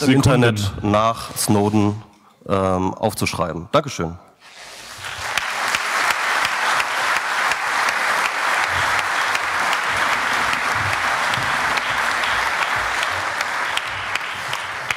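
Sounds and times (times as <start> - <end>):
audience applauding: 4.5 - 14.9.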